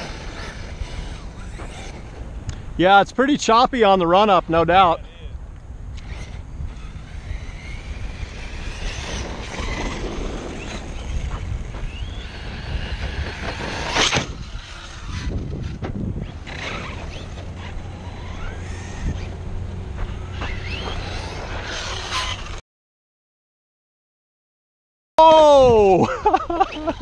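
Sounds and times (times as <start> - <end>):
electric motor whining: 0.0 - 2.6, 5.9 - 22.6
wind rumble on microphone: 4.5 - 22.6.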